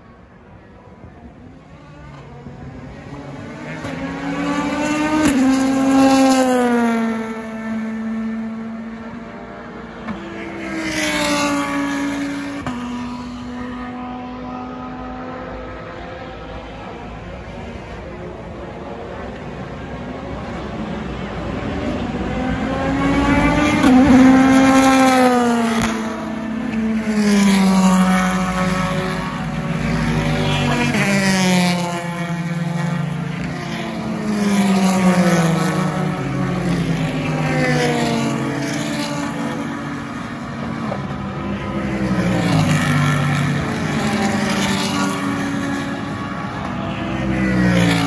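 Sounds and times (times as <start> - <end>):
race car engines passing: 0.0 - 48.0.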